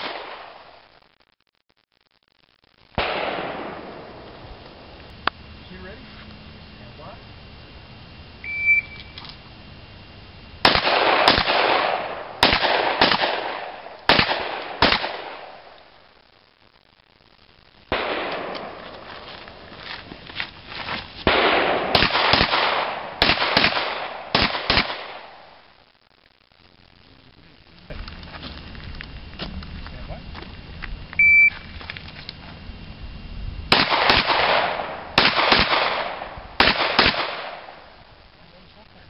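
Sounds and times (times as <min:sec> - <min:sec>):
pistol shots with echo: 0:03.0 - 0:04.0, 0:10.6 - 0:15.6, 0:21.3 - 0:25.5, 0:33.7 - 0:37.8.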